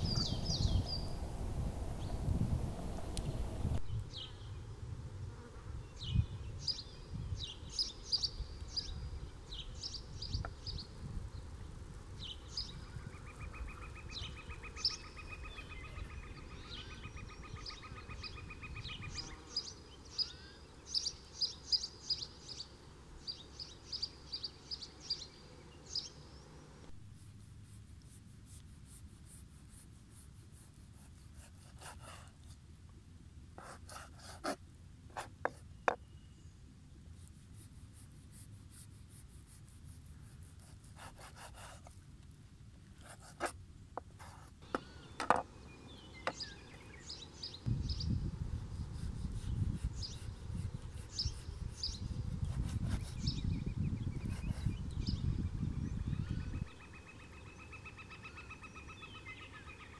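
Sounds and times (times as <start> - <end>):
small birds chirping: 0.0 - 1.2, 5.8 - 26.9, 44.2 - 59.9.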